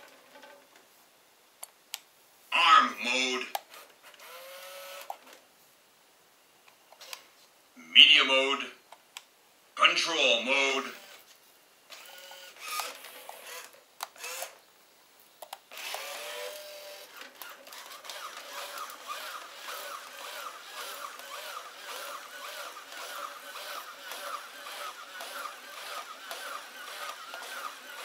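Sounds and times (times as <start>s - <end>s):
toy robot motors whirring: 3.7s - 5.3s, 10.9s - 11.3s, 11.9s - 14.6s, 15.7s - 28.0s
toy robot clicks: 15.4s - 28.0s.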